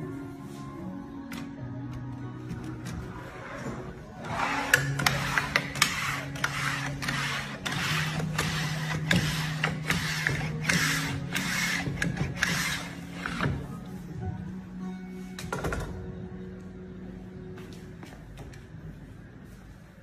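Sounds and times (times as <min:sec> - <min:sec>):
background music with low tone: 0:00.0 - 0:20.0
seam bender rasping and clicking: 0:04.3 - 0:13.5.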